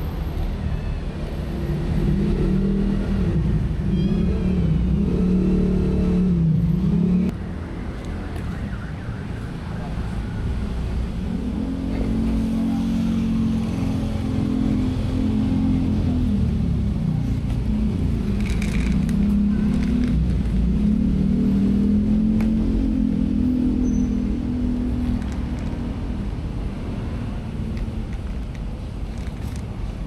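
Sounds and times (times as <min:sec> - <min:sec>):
kibble rattling in plastic bottle: 0:18.3 - 0:20.2.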